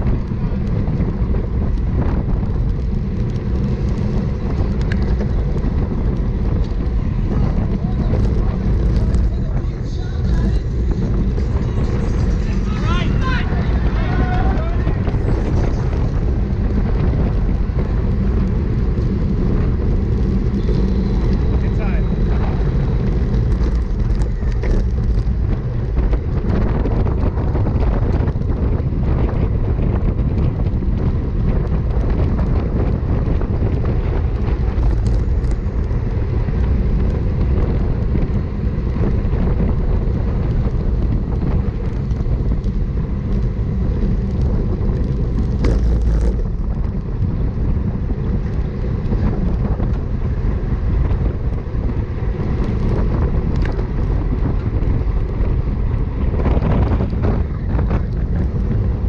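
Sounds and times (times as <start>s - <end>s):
wind rushing over microphone: 0.0s - 59.0s
faint bike clicks: 0.1s - 10.4s, 33.2s - 39.1s.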